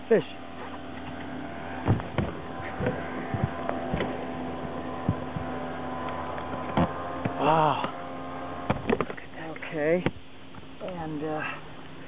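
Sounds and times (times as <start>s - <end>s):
steady electrical hum: 0.0s - 12.0s
short knocks and thumps: 1.8s - 4.2s, 5.0s - 5.6s.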